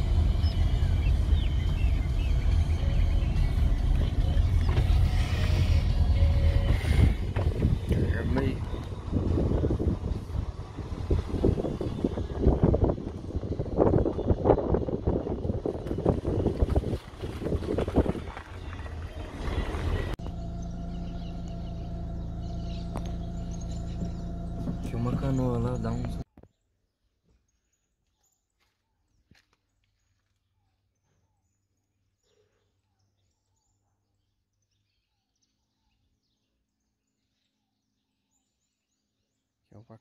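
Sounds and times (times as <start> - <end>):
vehicle rumble on dirt road: 0.0 - 26.3
distant birds chirping: 0.0 - 40.0
steady low hum: 19.4 - 26.2.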